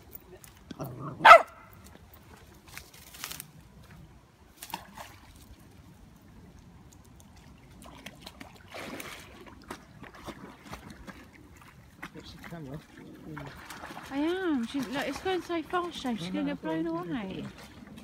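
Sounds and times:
dog splashing in water: 0:07.3 - 0:18.0.

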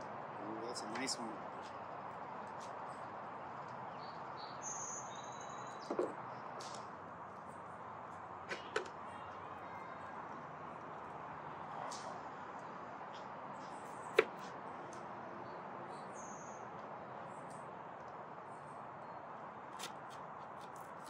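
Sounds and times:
knife knocking on board: 0:05.9 - 0:06.2.

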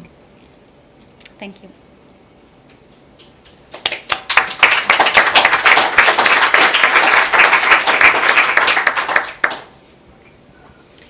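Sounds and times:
audience applauding: 0:03.7 - 0:09.7.

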